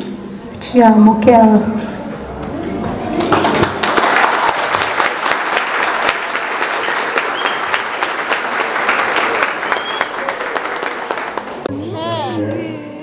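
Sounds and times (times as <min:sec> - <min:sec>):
crowd applauding: 0:02.2 - 0:11.7.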